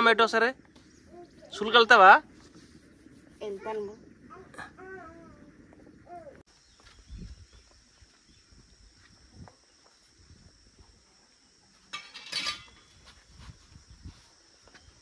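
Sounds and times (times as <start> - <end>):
high insect drone: 0.0 - 15.0.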